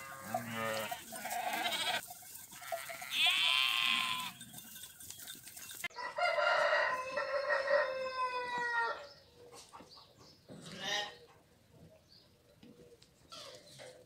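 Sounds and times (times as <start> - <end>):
rooster crowing: 5.9 - 9.1.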